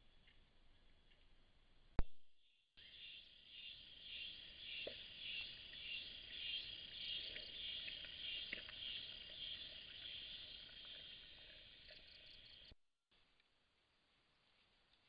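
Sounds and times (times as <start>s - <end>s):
insects buzzing and trilling: 2.8s - 12.8s.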